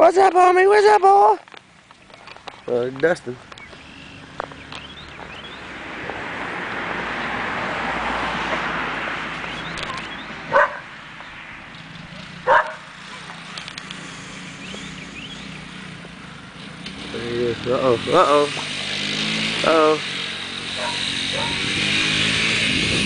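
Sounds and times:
dog barking: 10.5s - 10.9s, 12.4s - 13.4s, 20.8s - 21.7s.

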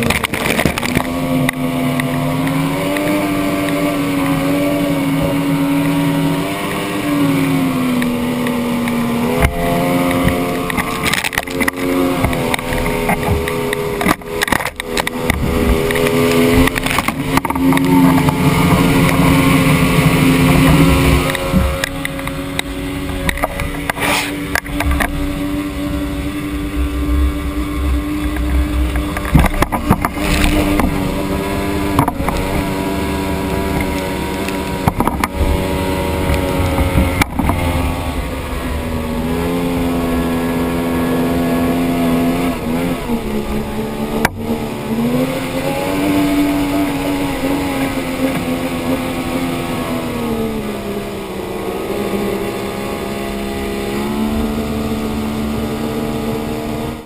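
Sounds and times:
outboard motor running: 0.0s - 57.0s
sharp thumps: 8.0s - 40.3s
prop wash and spray hissing: 15.4s - 29.5s.

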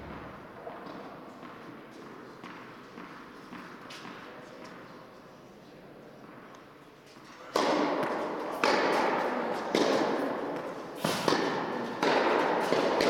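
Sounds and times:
tennis ball hit by rackets: 11.1s - 13.0s.

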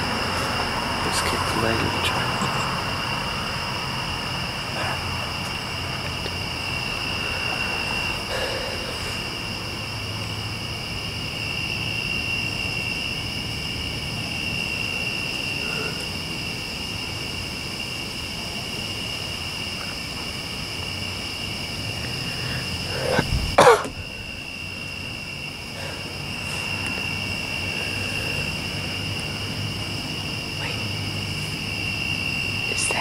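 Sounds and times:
crickets chirring: 0.0s - 33.0s
person coughing: 23.0s - 24.0s.

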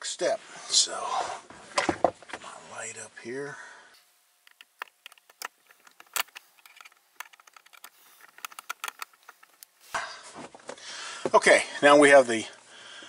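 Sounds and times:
screwdriver clicking on plastic: 4.5s - 9.7s.

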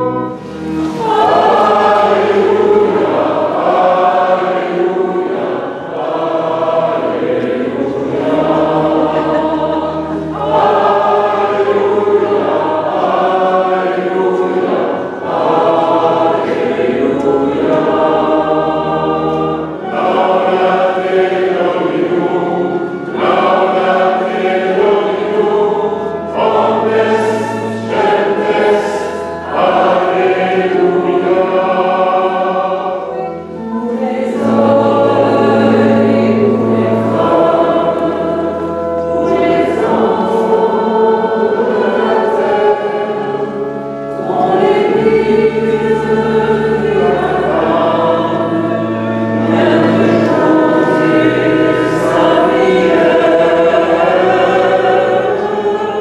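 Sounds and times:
congregation singing a hymn: 0.0s - 56.0s
organ holding bass notes: 0.0s - 56.0s
woman cantor singing: 0.9s - 19.2s, 19.8s - 43.5s.

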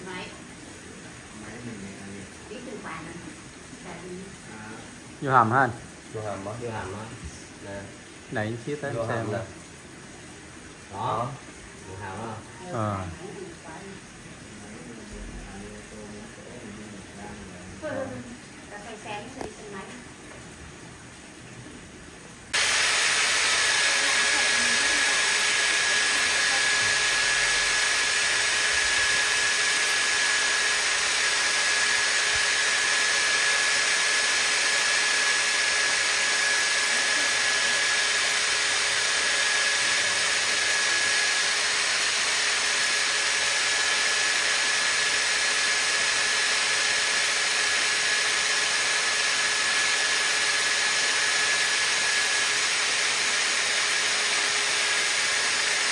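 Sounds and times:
machine motor whining: 22.6s - 55.9s.

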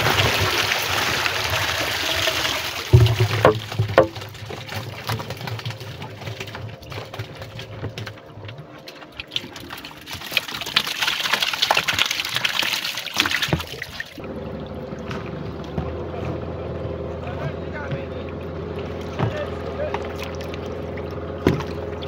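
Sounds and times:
water pouring and splashing: 0.0s - 16.4s, 18.4s - 22.0s
steady low hum: 14.2s - 22.0s.

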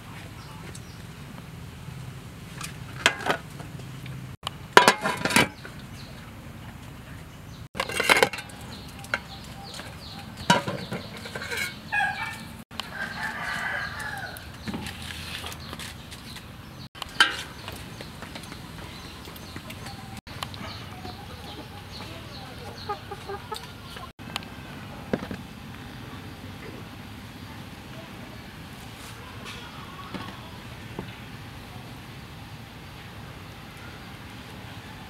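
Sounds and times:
chickens clucking: 7.6s - 14.8s, 16.9s - 24.2s
metallic knocks of pot and lid: 10.4s - 11.8s
rooster crowing: 11.9s - 14.5s.

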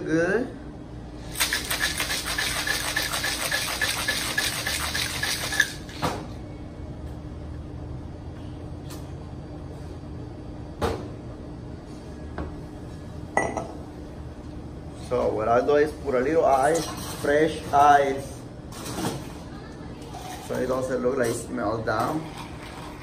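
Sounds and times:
ice rattling in cocktail shaker: 1.3s - 5.8s.

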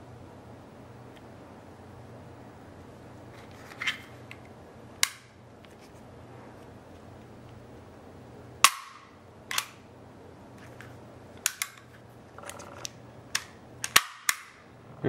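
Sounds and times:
pistol metallic clicks: 8.6s - 9.8s, 11.4s - 11.9s, 13.3s - 14.6s.

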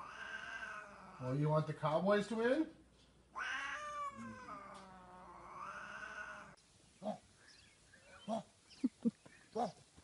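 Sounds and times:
cat calls: 0.0s - 1.2s, 3.3s - 6.6s
cat yowling: 0.0s - 1.3s, 3.4s - 6.6s.

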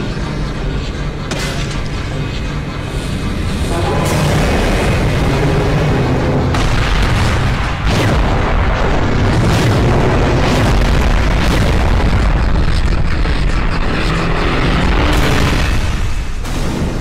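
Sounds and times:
deep continuous rumble: 0.0s - 17.0s
explosions and booms: 4.0s - 17.0s.

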